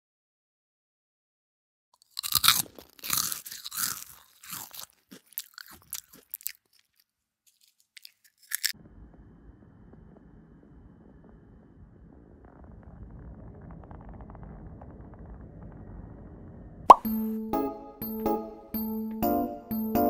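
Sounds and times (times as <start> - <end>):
crunchy food chewing: 2.0 - 8.8
faint low rumble: 8.8 - 16.8.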